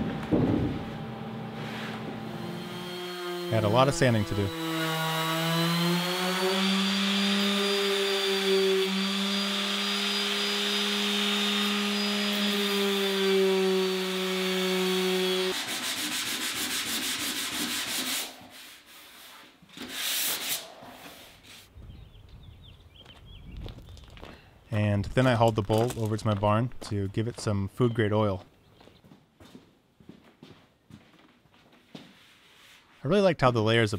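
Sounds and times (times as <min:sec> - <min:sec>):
harsh pulsing buzz: 0:00.0 - 0:15.6
orbital sander on wood: 0:00.0 - 0:18.8.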